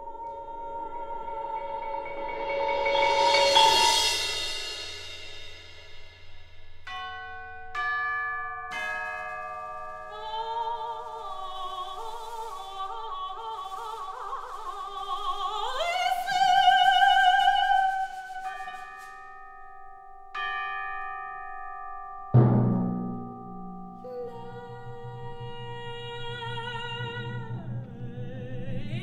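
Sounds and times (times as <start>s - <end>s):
soprano voice singing: 0.0s - 4.3s, 10.0s - 18.8s, 24.0s - 29.0s
ringing bell-like metal strokes: 0.0s - 29.0s.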